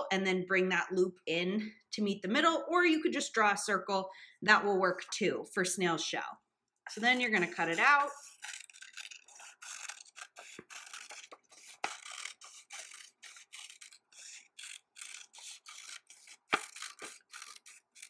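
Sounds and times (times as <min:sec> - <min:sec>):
paper rustling: 0:06.9 - 0:18.0
scissors snipping paper: 0:06.9 - 0:18.0.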